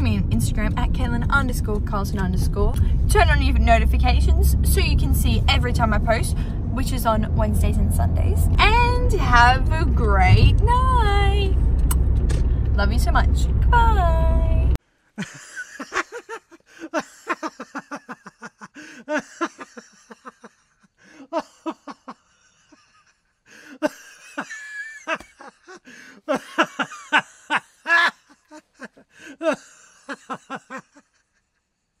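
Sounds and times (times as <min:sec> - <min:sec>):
person laughing: 0:15.2 - 0:23.0, 0:23.7 - 0:31.2.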